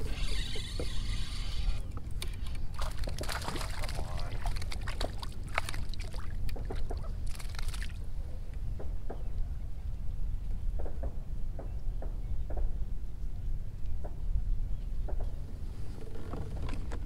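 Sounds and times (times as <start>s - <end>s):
fishing rod and reel rattling: 0.0s - 7.9s.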